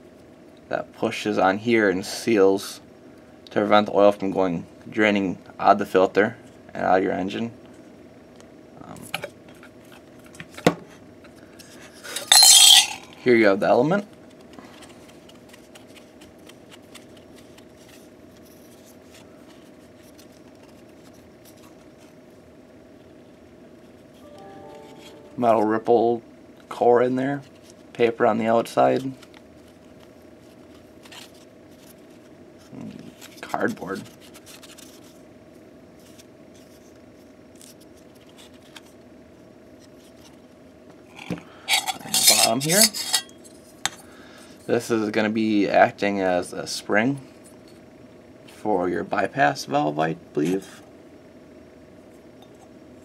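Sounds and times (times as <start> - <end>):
faint steady hum: 0.0 - 53.0
paper filter rustling and clicking: 14.2 - 22.2.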